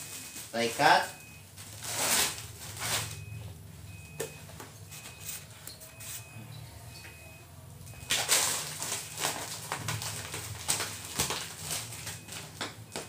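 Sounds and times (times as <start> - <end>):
plastic bag rustling: 0.0 - 3.2, 8.1 - 12.6.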